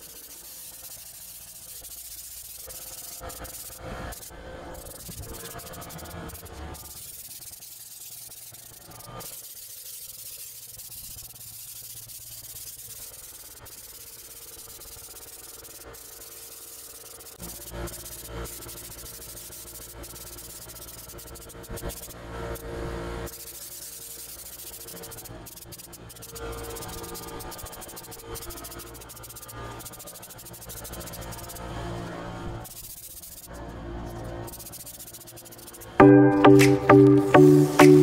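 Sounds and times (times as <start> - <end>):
spray gun hissing: 0.0 - 21.1.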